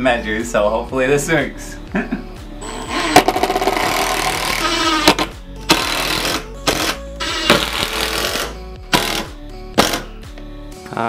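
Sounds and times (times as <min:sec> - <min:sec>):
impact driver driving screws: 0:02.6 - 0:10.1.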